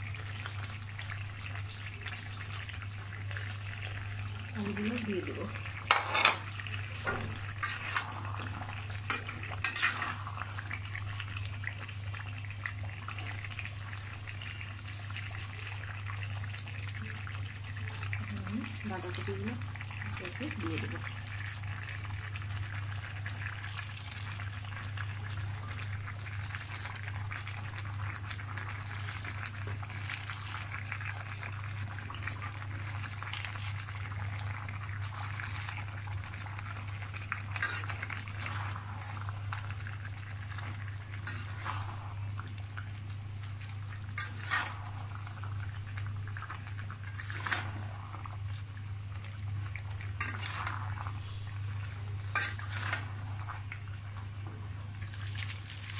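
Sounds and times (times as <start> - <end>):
curry bubbling in a wok: 0.0 - 55.9
metal spatula scraping a pan: 5.9 - 10.6, 37.5 - 39.8, 40.4 - 42.2, 44.2 - 45.2, 47.1 - 48.2, 50.2 - 51.4, 52.3 - 53.6
steady low hum: 24.4 - 55.9
cabbage being piled in: 55.0 - 55.9.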